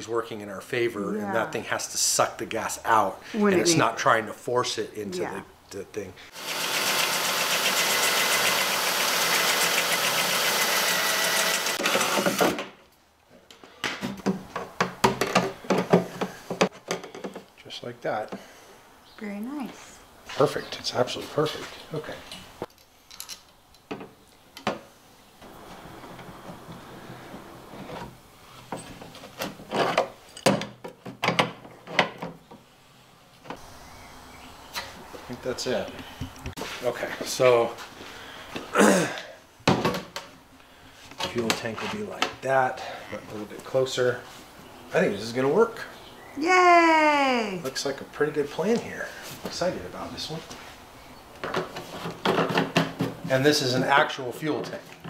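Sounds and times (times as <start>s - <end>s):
cordless drill whirring: 6.4s - 12.5s.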